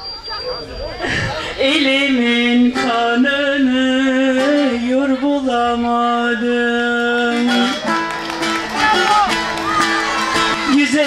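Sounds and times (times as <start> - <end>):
person singing long notes: 1.5 - 8.1.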